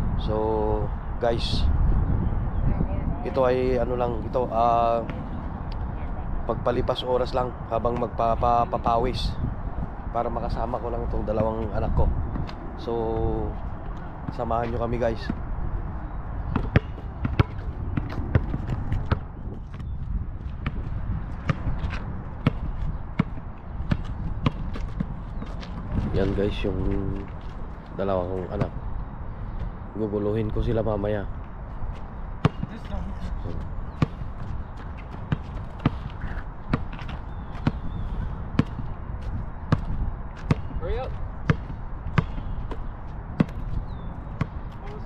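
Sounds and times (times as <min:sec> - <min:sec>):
steady low rumble: 0:00.0 - 0:45.0
basketball bouncing on asphalt: 0:12.2 - 0:26.2, 0:28.4 - 0:28.8, 0:31.8 - 0:45.0.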